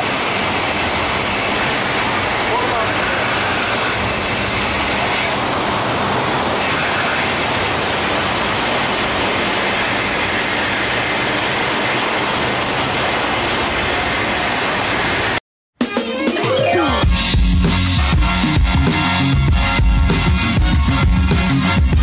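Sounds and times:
sea water rushing along hull: 0.0s - 15.4s.

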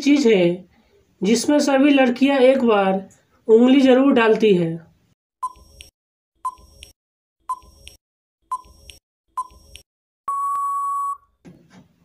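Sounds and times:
long steady beep: 10.3s - 11.3s
short beeps: 10.3s - 11.3s.

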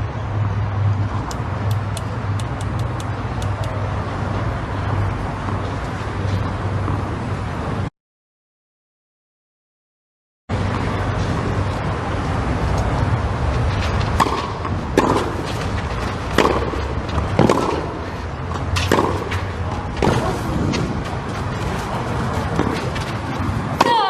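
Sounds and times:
racket striking tennis ball: 13.8s - 24.0s.

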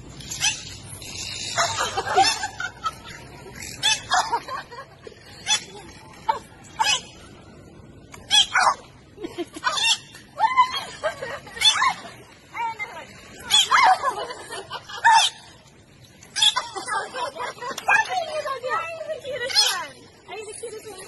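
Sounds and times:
dolphin squeaks and whistles: 0.2s - 2.5s, 3.6s - 4.3s, 8.3s - 8.7s, 13.4s - 13.8s, 16.3s - 16.7s.

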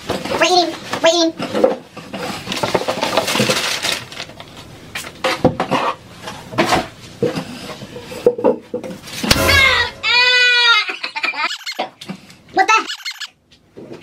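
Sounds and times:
rustling and handling noises: 0.0s - 9.3s.

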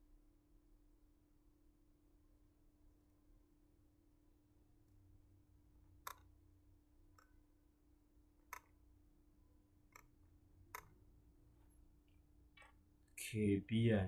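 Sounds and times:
faint steady hum: 0.0s - 14.0s
computer mouse clicks: 6.0s - 6.3s, 8.4s - 8.8s, 9.9s - 11.0s.

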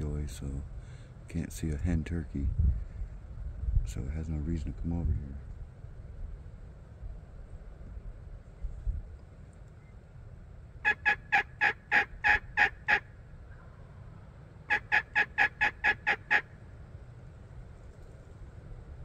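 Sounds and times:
turkey call hen yelps: 10.8s - 13.1s, 14.7s - 16.5s.

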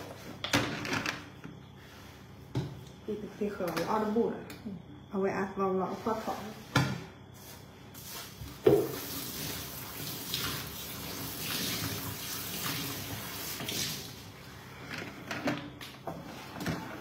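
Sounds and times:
water running from tap: 8.0s - 14.4s.

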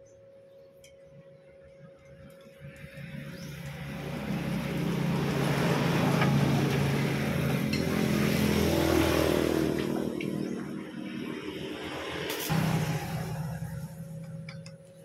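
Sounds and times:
vehicle engine passing: 3.0s - 14.6s.

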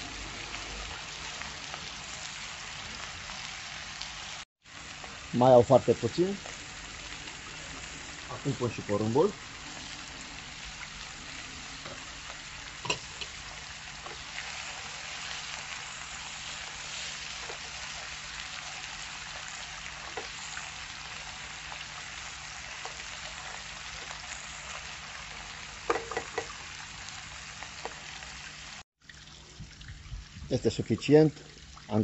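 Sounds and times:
food sizzling in a frying pan: 0.0s - 28.8s
spatula knocking against pan: 25.9s - 26.6s.

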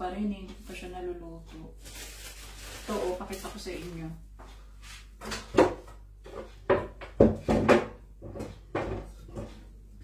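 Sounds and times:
rustling: 1.8s - 4.0s
kitchen items knocking and clattering: 5.2s - 9.8s.

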